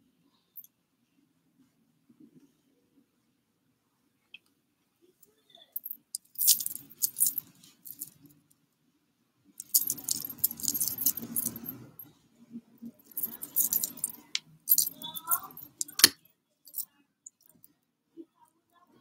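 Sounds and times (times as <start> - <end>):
metal bracelets jingling: 5.8 - 8.2, 9.6 - 12.0, 13.0 - 16.8
hand rustling through hair: 6.2 - 8.1, 9.6 - 11.7.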